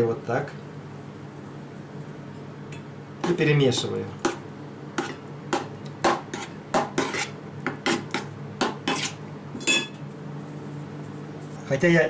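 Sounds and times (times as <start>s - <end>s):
metal spoon scraping enamel bowl: 6.3s - 8.2s, 8.8s - 9.9s.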